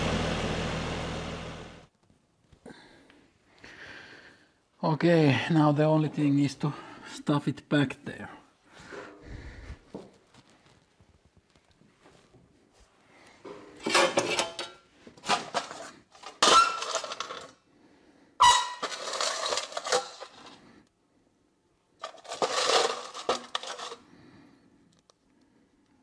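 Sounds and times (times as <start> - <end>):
steel parts clinking in metal bowl: 13.8 - 17.5, 18.4 - 20.6, 22.0 - 24.0.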